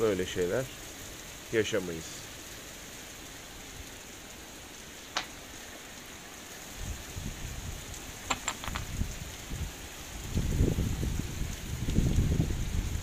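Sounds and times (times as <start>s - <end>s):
heavy rain hissing: 0.0s - 13.0s
wind buffeting microphone: 6.7s - 13.0s.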